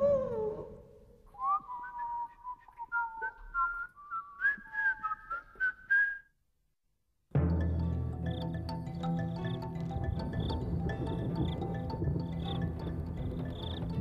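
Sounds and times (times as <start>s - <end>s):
person whistling a tune: 1.3s - 6.3s.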